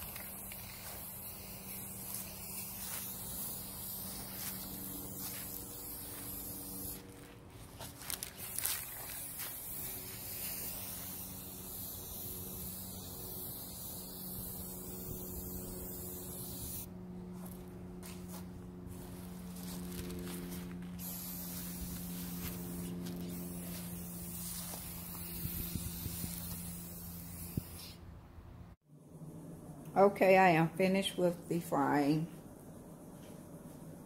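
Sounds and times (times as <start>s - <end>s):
spray paint can hissing: 0.0s - 7.1s, 7.8s - 16.9s, 21.0s - 28.0s
steady low hum: 0.0s - 34.0s.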